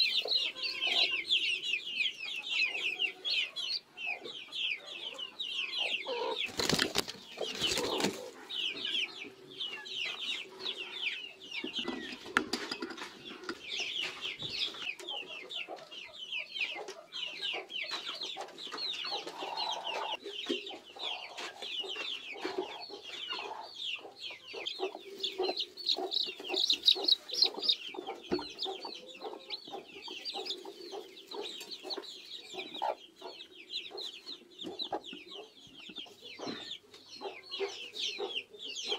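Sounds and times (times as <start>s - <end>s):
chicks peeping: 0.0s - 38.9s
hen clucking: 0.0s - 38.9s.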